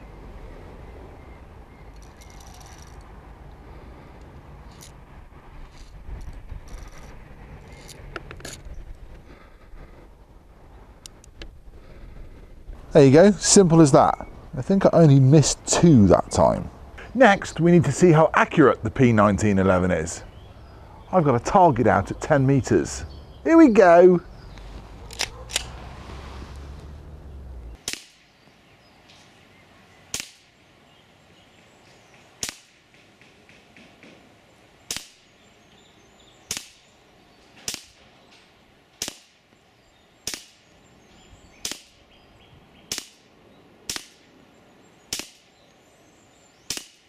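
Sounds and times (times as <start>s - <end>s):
air pistol shots: 27.8s - 28.2s, 30.1s - 30.5s, 32.4s - 32.8s, 34.9s - 35.2s, 36.5s - 36.9s, 37.6s - 38.0s, 39.0s - 39.4s, 40.2s - 40.7s, 41.6s - 42.0s, 42.9s - 43.3s, 43.9s - 44.3s, 45.1s - 45.5s, 46.7s - 47.0s.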